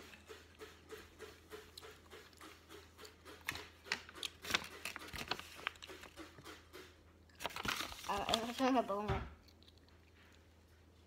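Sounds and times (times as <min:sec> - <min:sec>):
paper rustling: 0:03.1 - 0:06.7, 0:07.4 - 0:10.5.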